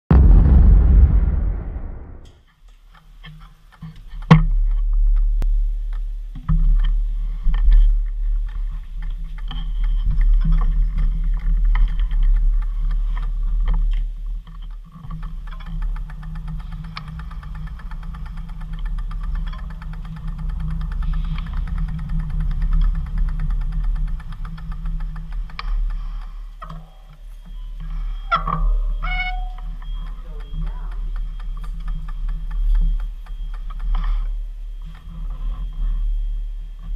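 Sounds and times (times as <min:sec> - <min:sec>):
road rumble: 0:00.1 - 0:02.3
wind noise: 0:00.1 - 0:02.3.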